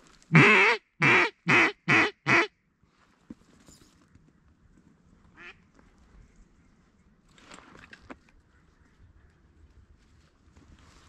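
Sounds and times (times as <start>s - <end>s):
duck call quacks: 0.3s - 2.5s.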